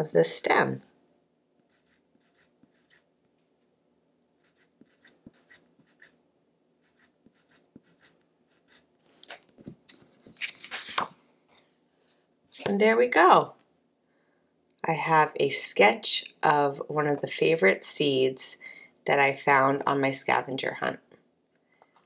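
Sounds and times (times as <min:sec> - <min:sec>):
pencil scratching on paper: 0:01.7 - 0:03.1, 0:04.4 - 0:06.2, 0:06.8 - 0:08.9
paper sheet rustling: 0:10.3 - 0:11.1.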